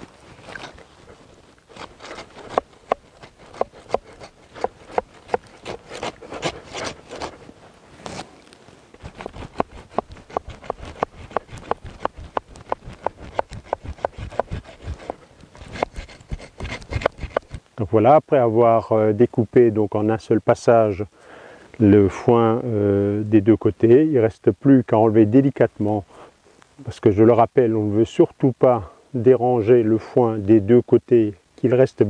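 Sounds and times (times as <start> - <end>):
blades sawing through dry hay: 0.0 - 8.4, 9.0 - 17.6.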